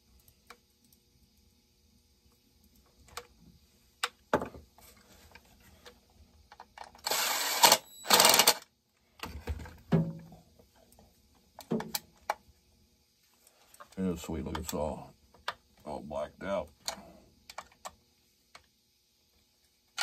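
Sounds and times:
cordless screwdriver whirring: 7.0s - 8.6s.

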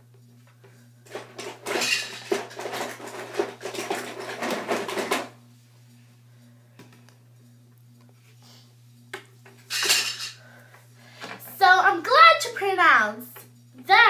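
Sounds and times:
plastic toy pieces clattering: 1.2s - 5.2s.

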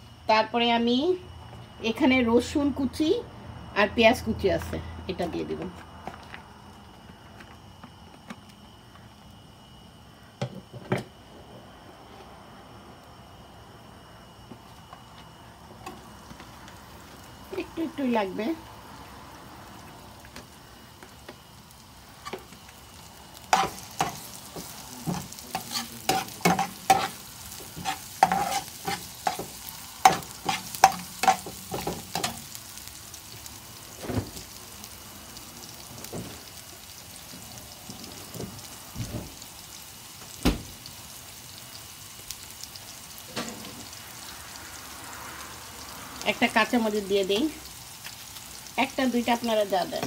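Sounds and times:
food sizzling in oil: 14.2s - 50.0s
metal spatula scraping pan: 27.8s - 29.5s.

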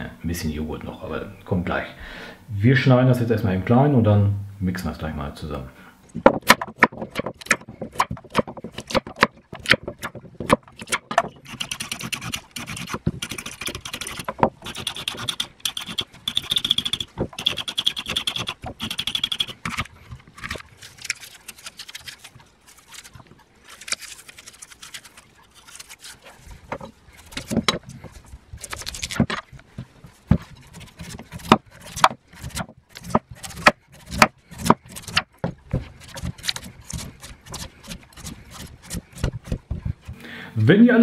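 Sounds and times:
knife blade scraping: 10.8s - 26.4s, 30.4s - 35.2s, 36.0s - 39.6s.

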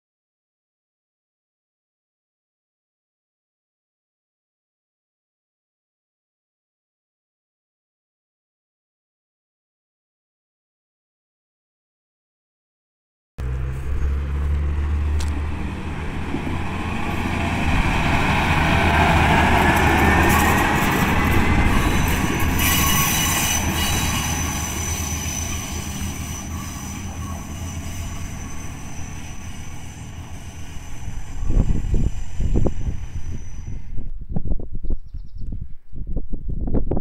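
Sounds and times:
railcar engine rumble: 13.4s - 34.8s
wheel squeal: 19.6s - 34.0s.

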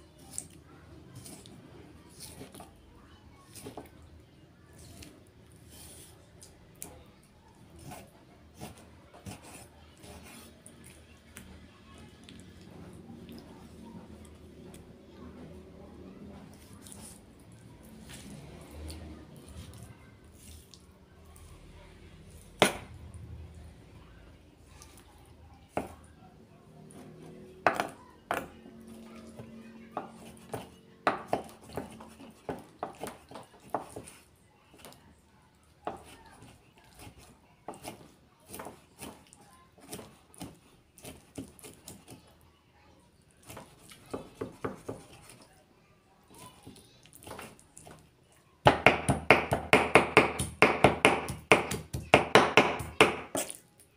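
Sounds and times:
knife chopping on wooden board: 22.6s - 22.9s, 27.6s - 28.5s, 30.0s - 34.1s, 48.7s - 53.6s.

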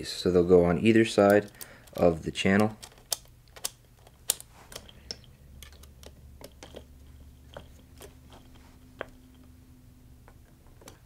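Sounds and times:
small metal parts clicking: 1.1s - 9.5s.

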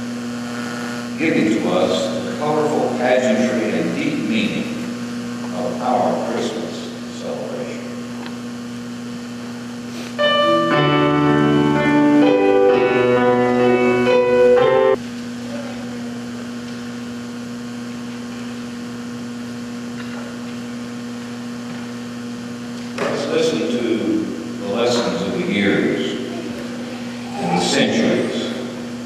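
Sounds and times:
steady hum: 0.0s - 29.0s
held keyboard chords: 10.2s - 15.0s.

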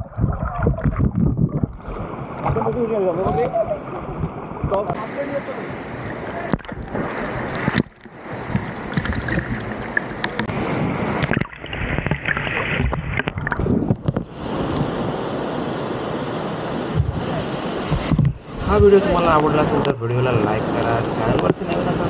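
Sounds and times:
water splashing and sloshing: 0.0s - 15.1s, 16.7s - 22.0s
waterfall rushing into pool: 4.8s - 9.0s, 9.7s - 22.0s.

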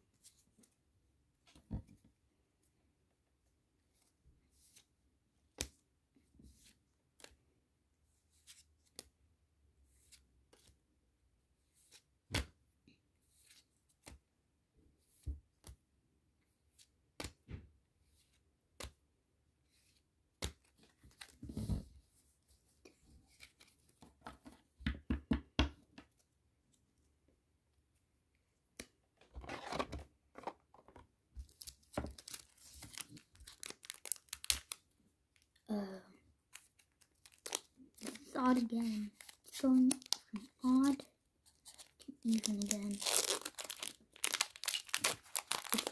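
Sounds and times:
cards snapping and flicking: 17.2s - 17.4s
cards rustling: 29.3s - 34.8s, 36.5s - 45.9s.

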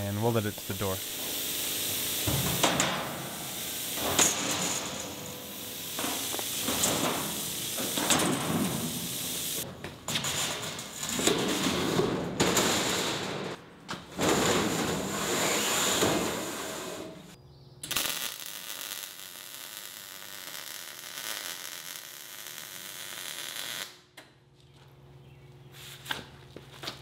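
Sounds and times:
welder arc crackling hiss: 0.0s - 9.7s, 17.8s - 24.0s.

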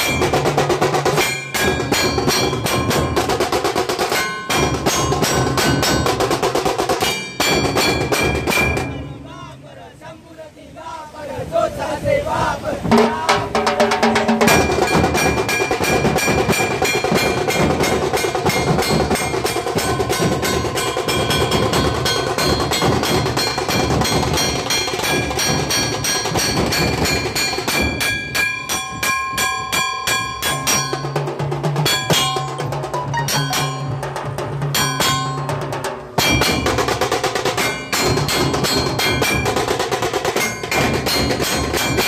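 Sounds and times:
dhol drums: 0.0s - 9.4s, 12.8s - 42.0s
tasha drum rolling strokes: 0.0s - 9.6s, 11.3s - 42.0s
low held tone: 31.9s - 34.0s.

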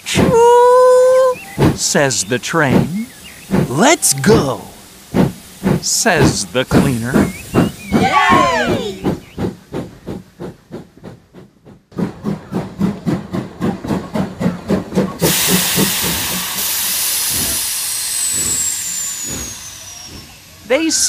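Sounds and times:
cartoon steam locomotive chuffing: 0.0s - 21.0s
steam hissing: 0.0s - 21.0s
falling whistle-like tone: 0.7s - 1.8s, 2.8s - 4.9s, 7.1s - 9.3s.

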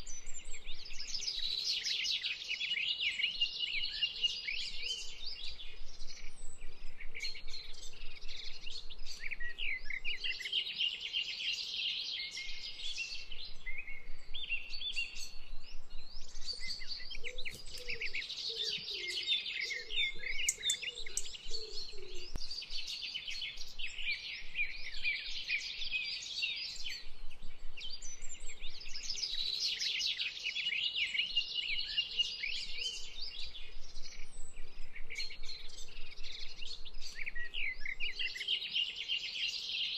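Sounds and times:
songbirds chirping and trilling: 0.0s - 39.9s
lower bird calls: 12.2s - 39.0s.

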